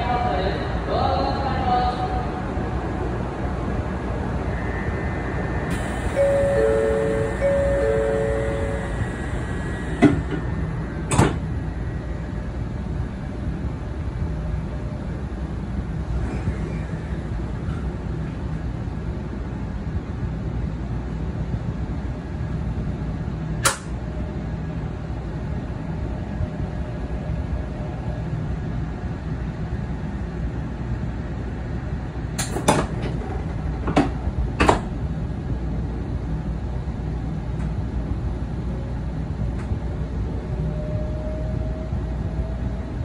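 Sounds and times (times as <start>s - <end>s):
train low rumble: 0.0s - 43.0s
train whine rising in pitch: 3.0s - 14.5s, 38.7s - 43.0s.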